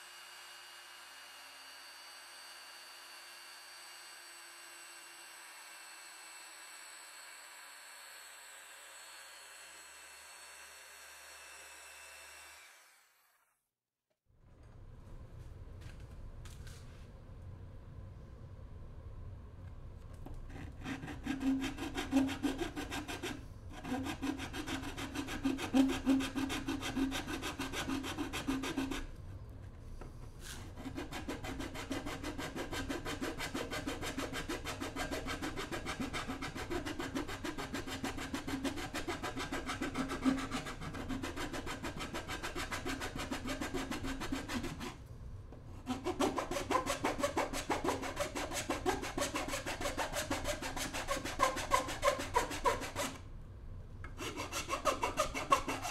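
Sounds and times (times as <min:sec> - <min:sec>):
metal file rasping on plastic: 0:20.5 - 0:29.1, 0:30.4 - 0:45.0, 0:45.8 - 0:53.2, 0:54.1 - 0:55.9.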